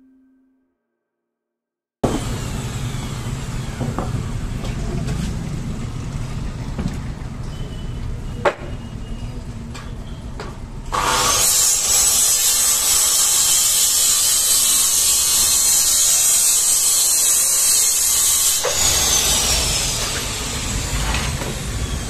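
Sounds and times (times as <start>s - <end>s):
small motor whining: 2.0s - 4.8s, 10.9s - 22.0s.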